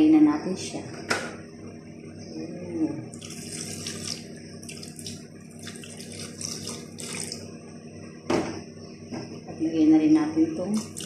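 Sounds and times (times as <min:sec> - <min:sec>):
liquid pouring into pot: 0:03.1 - 0:07.5, 0:10.8 - 0:11.0.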